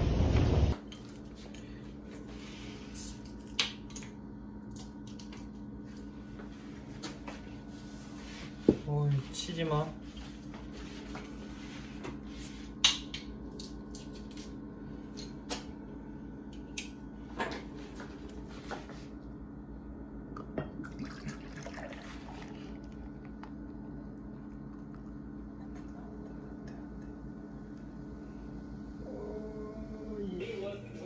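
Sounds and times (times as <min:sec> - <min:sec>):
low hum: 0:13.2 - 0:31.0
beer pouring into glass: 0:20.4 - 0:23.4.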